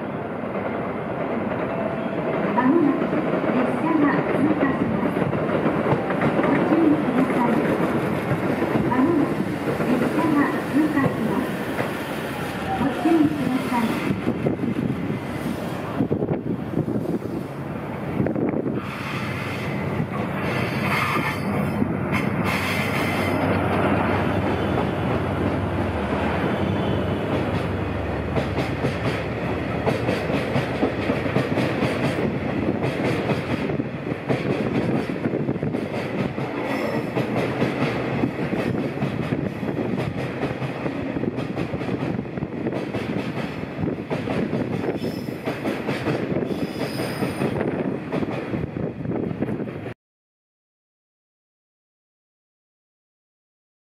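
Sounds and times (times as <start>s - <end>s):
train wheels clattering over rail joints: 28.3s - 48.5s.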